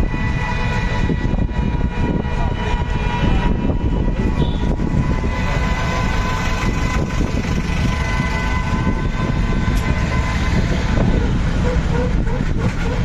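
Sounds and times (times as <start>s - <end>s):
busy street traffic rumble: 0.0s - 13.0s.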